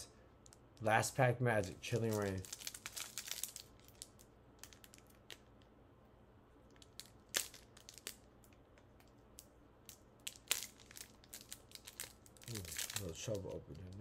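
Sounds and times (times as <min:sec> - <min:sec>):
foil wrapper crinkling: 0:01.6 - 0:05.4, 0:06.8 - 0:08.3, 0:10.2 - 0:14.0.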